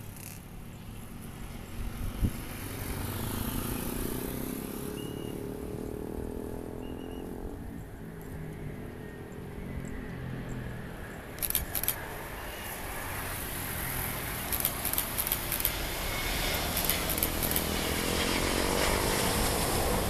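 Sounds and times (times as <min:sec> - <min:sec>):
jet engines roaring: 0:10.9 - 0:20.0
camera shutters clicking: 0:11.4 - 0:12.0, 0:14.5 - 0:15.8, 0:16.7 - 0:17.7.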